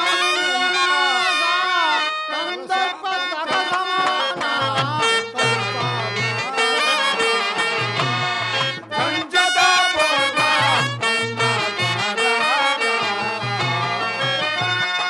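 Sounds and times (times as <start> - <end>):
man singing: 0.0 - 15.0
instrumental accompaniment with low beat: 3.4 - 15.0.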